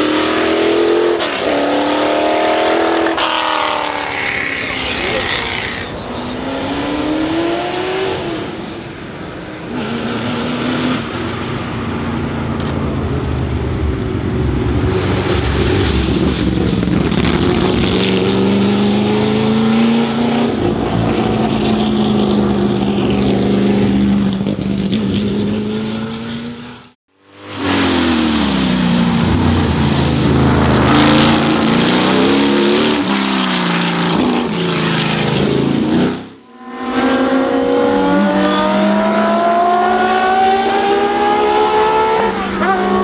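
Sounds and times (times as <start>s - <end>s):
racing car engine accelerating: 12.6s - 43.0s.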